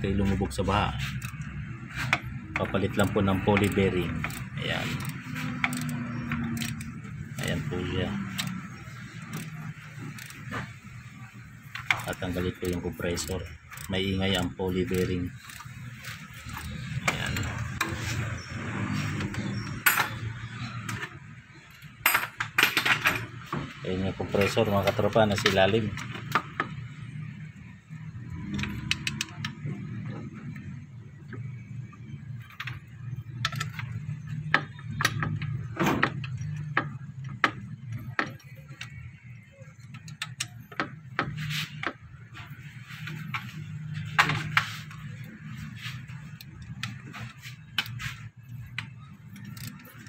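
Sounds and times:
metal tools clinking: 0:19.3 - 0:21.0, 0:21.7 - 0:23.5.

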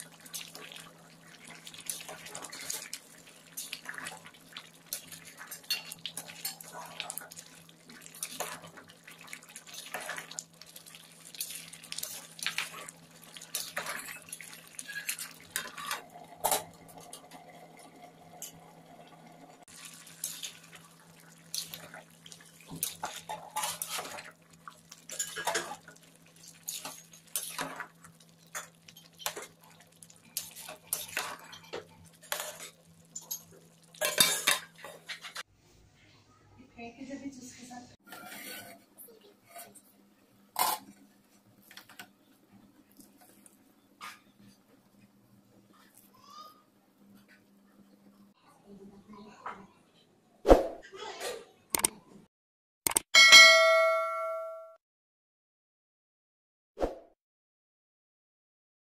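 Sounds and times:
metal ladle scraping pot: 0:38.0 - 0:38.9.

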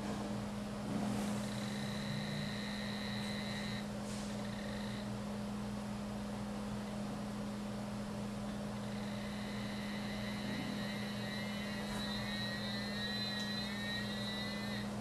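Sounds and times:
low electrical hum: 0:00.0 - 0:15.0
high electronic tone: 0:01.5 - 0:03.8, 0:08.9 - 0:14.9.

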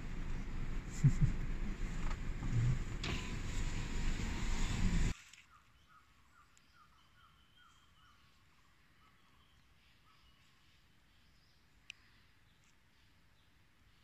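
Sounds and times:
faint birdsong: 0:04.6 - 0:14.0.

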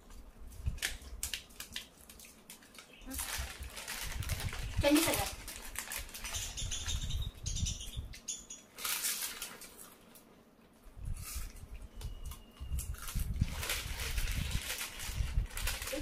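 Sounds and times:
chip packets crinkling: 0:00.7 - 0:06.5, 0:08.7 - 0:10.3, 0:12.7 - 0:16.0.

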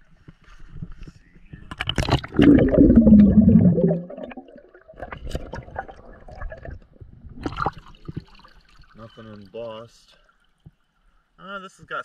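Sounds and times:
underwater river gurgling: 0:01.8 - 0:09.0.

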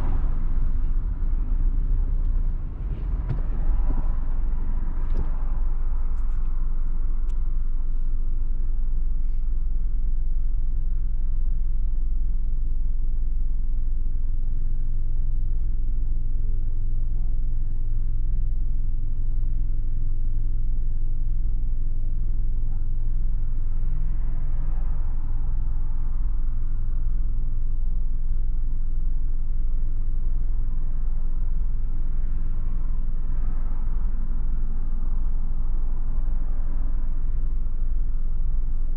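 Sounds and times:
traffic noise: 0:00.0 - 0:12.1, 0:20.6 - 0:38.9
car engine idling: 0:00.0 - 0:38.9.

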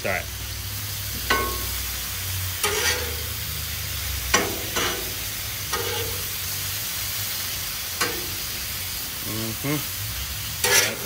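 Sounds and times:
liver and onions sizzling on griddle: 0:00.0 - 0:11.0
metal spatula scraping griddle: 0:01.2 - 0:06.5, 0:07.9 - 0:08.9, 0:10.3 - 0:11.0.

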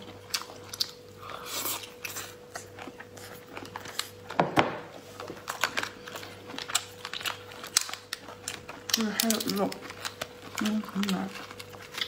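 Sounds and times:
wet chewing mouth sounds: 0:00.0 - 0:04.3.

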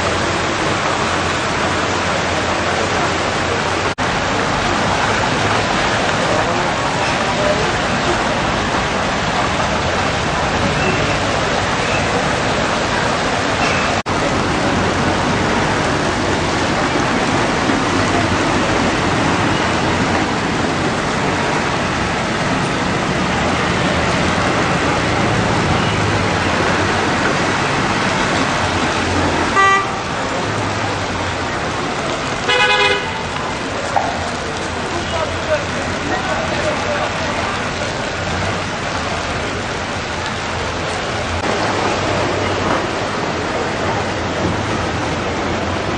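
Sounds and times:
heavy rain: 0:00.0 - 0:45.9
traffic on wet street: 0:00.0 - 0:45.9
car horn tooting: 0:29.5 - 0:30.1, 0:32.5 - 0:33.3.

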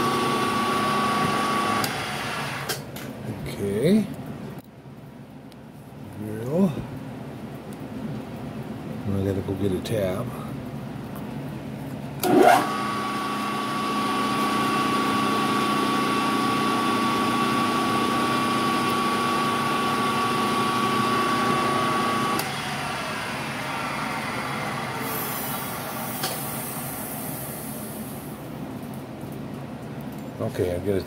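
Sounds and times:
drill press motor whine: 0:00.0 - 0:02.8, 0:12.2 - 0:28.4.

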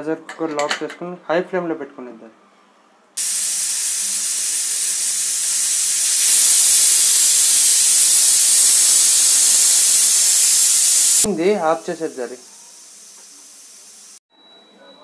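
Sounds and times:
pressure cooker whistling steam: 0:03.2 - 0:14.2.

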